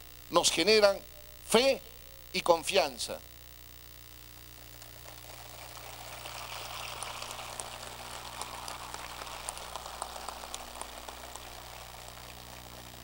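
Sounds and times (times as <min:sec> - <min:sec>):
audience applauding: 0:04.9 - 0:13.0.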